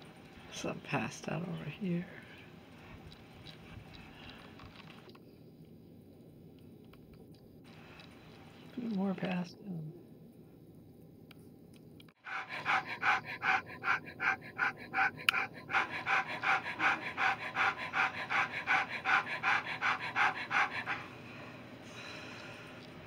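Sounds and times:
dog panting rapidly: 12.2 - 21.2.

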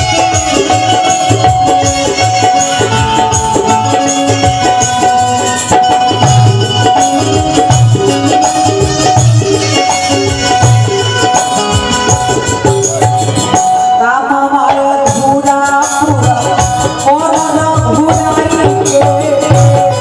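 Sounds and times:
hand drum beat: 0.0 - 14.0, 14.7 - 20.0
jingling percussion: 0.0 - 14.2, 15.0 - 20.0
sustained melody instrument: 0.0 - 14.6.

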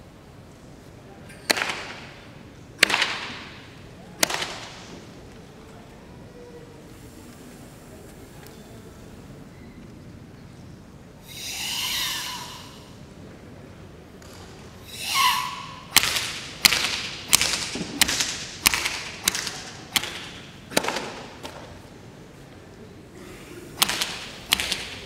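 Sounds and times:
forceful hissing exhalations: 11.2 - 13.0.

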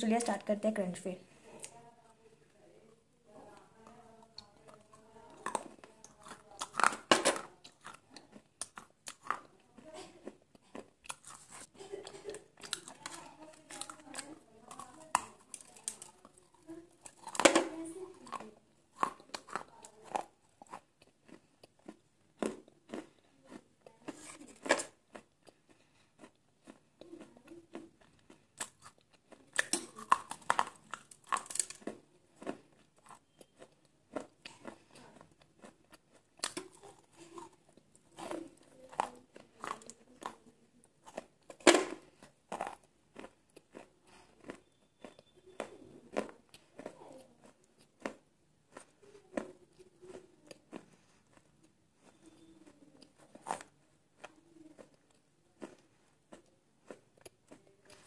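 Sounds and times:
quiet chewing: 1.3 - 58.0
crunching bites of baked clay: 5.3 - 9.6, 12.6 - 40.4, 41.0 - 49.6.

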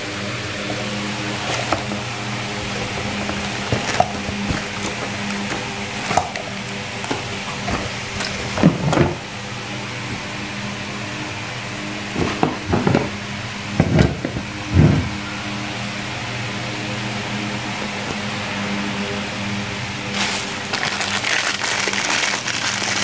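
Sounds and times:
low background hum: 0.0 - 23.0
cardboard box rustling: 0.6 - 9.2, 20.1 - 22.7.

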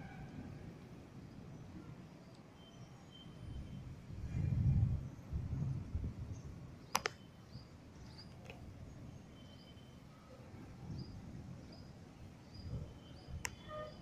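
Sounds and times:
sharp double click: 6.9 - 7.2.

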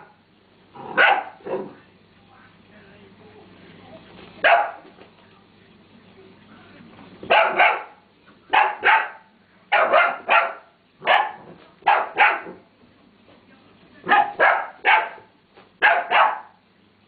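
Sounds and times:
puppy barking: 0.9 - 1.8, 4.4 - 4.9, 7.2 - 12.6, 14.1 - 16.6.

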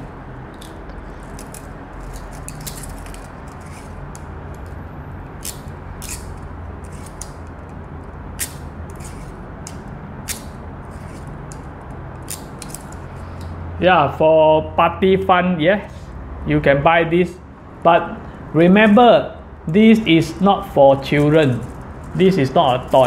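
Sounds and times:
metal parts tapping: 0.5 - 4.8, 8.4 - 13.0
toy handcuffs ratchet clicking: 0.5 - 7.8, 8.4 - 13.0, 21.2 - 23.0.

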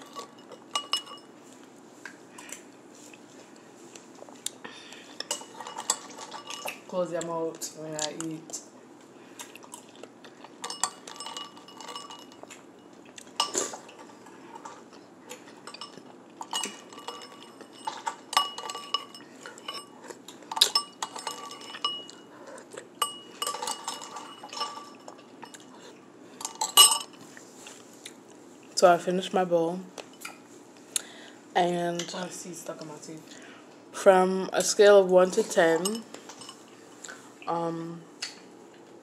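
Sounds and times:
metal spoon clinking on ceramic bowl: 0.1 - 1.3, 10.6 - 12.4, 15.6 - 19.9, 20.5 - 22.2, 23.0 - 25.6, 26.4 - 27.2.

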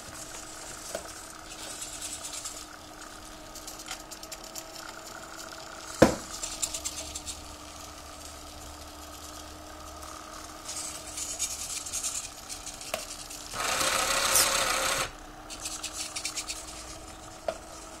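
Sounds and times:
servo motors whirring: 10.5 - 18.0.

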